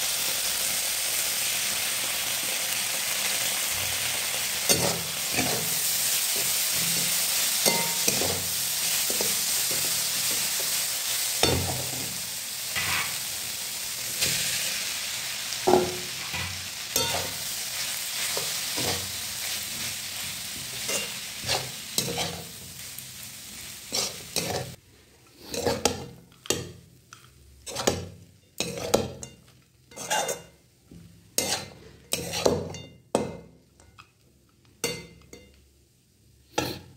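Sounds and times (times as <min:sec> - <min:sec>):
vegetables sizzling in oil: 0:00.0 - 0:33.4
spatula scraping pan: 0:04.7 - 0:10.8, 0:15.8 - 0:22.6, 0:23.9 - 0:24.8, 0:25.4 - 0:26.1, 0:28.6 - 0:29.3, 0:29.9 - 0:30.5, 0:31.4 - 0:32.8.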